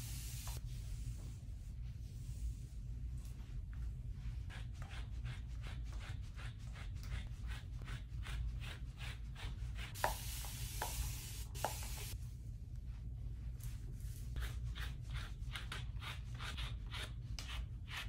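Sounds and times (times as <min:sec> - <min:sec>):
spray bottle hissing: 0:10.0 - 0:12.2.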